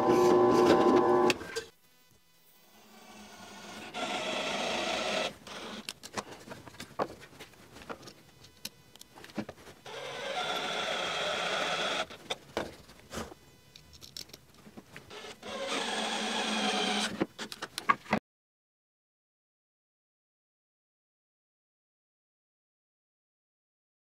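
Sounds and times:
cordless drill driving screws: 9.9s - 12.1s, 15.1s - 17.2s.

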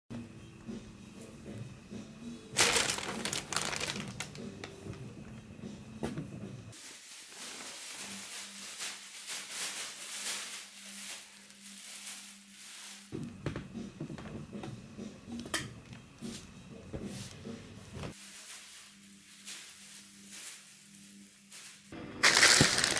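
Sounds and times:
plastic bag rustling: 2.6s - 4.9s, 6.7s - 13.1s, 18.1s - 22.9s.

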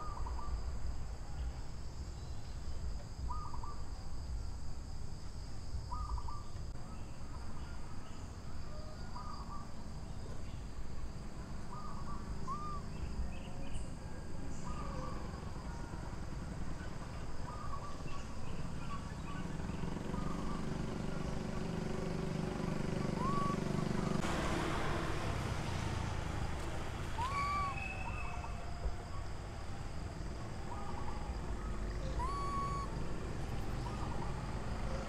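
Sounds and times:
short chirping call: 22.9s - 23.9s, 27.2s - 28.6s, 30.9s - 33.1s.

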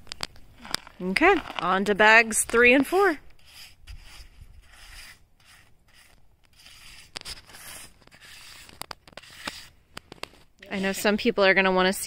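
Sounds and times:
trowel scraping wet concrete: 0.6s - 11.7s.

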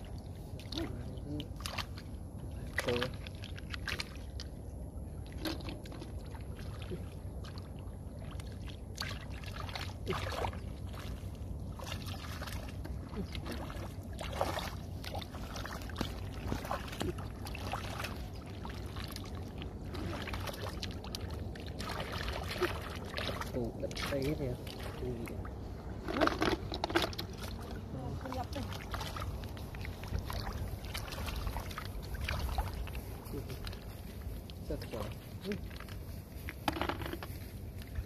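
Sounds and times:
mud squelching: 0.0s - 38.0s
steady low rumble: 0.0s - 38.0s
hands splashing in muddy water: 5.2s - 25.1s, 28.6s - 34.6s.

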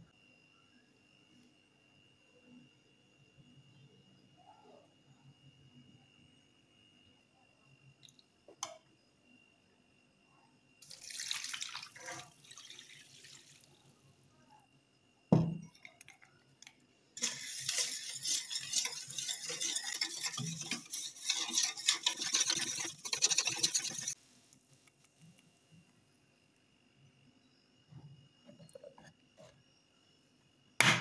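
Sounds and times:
milk pouring into steel bowl: 10.8s - 14.0s, 17.2s - 24.2s
whisk scraping steel bowl: 17.2s - 24.2s.

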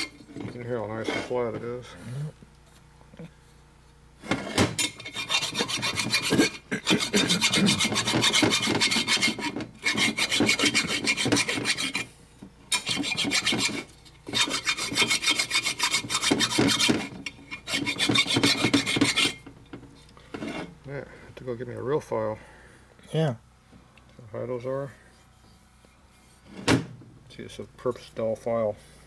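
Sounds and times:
hand file rasping on metal: 4.4s - 12.1s, 12.7s - 19.4s.

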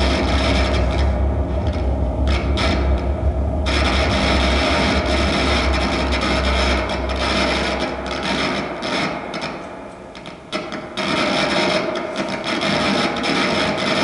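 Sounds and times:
deep low drone: 0.0s - 9.4s
scraping grinding noise music: 0.0s - 9.5s.

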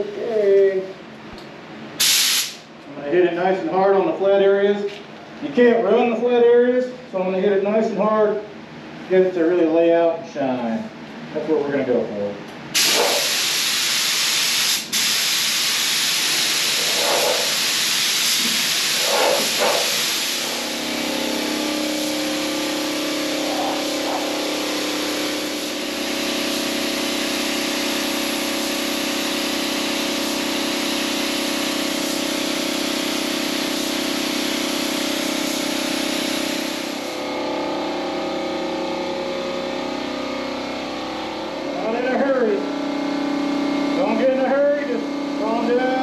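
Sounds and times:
paint spray gun hissing: 2.0s - 2.7s, 12.8s - 37.4s
steady motor hum: 16.4s - 46.0s.

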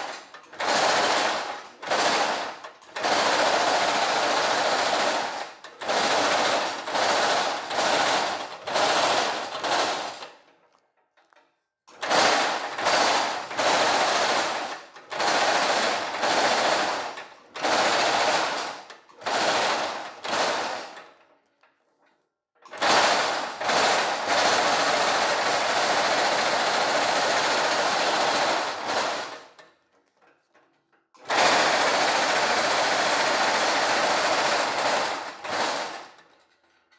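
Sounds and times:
power hammer rattling on steel mesh: 12.0s - 21.2s, 31.2s - 36.9s.

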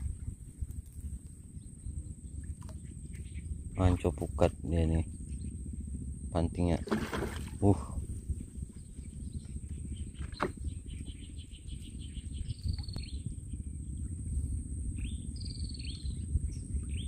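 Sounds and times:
low rumble: 0.0s - 17.0s
birds chirping: 1.4s - 5.8s, 6.4s - 14.2s.

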